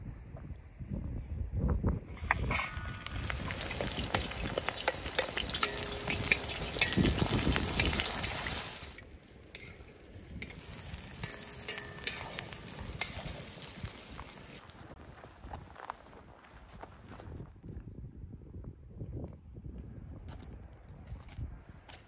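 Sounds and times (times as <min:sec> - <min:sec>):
meat sizzling in a pan: 0:02.2 - 0:09.0, 0:10.3 - 0:14.6.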